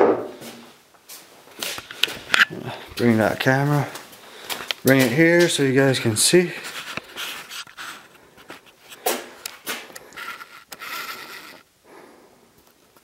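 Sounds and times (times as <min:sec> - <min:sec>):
camera handling noise: 0:01.7 - 0:02.6, 0:06.8 - 0:11.6.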